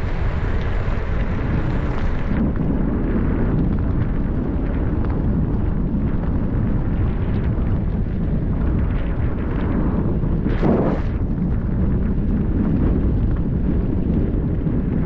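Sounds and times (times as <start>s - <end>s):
vehicle road noise: 0.0s - 2.4s
wind rush on microphone: 0.0s - 15.0s
loud whoosh: 10.4s - 11.3s.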